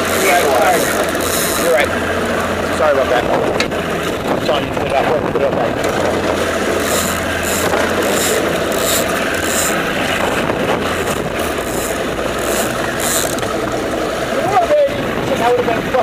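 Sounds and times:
choppy water: 0:00.0 - 0:16.0
hissing wind gusts: 0:00.0 - 0:16.0
outboard motor humming: 0:00.0 - 0:16.0
wind rushing: 0:01.6 - 0:14.1.

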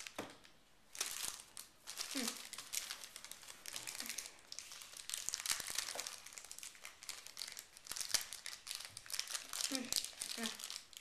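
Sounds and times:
wrapper crinkling and tearing: 0:00.0 - 0:11.0.

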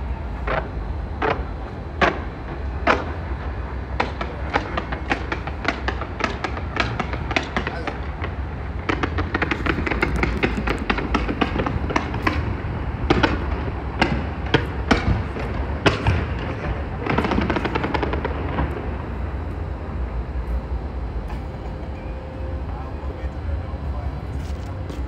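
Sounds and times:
fireworks bangs and crackles: 0:00.4 - 0:19.4.

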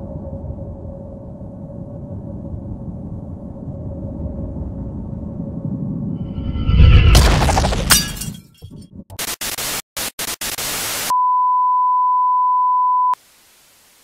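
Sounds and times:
crash with glass shattering: 0:06.7 - 0:08.7
bursts of static hiss: 0:09.1 - 0:11.1
steady test tone beep: 0:11.1 - 0:13.2.

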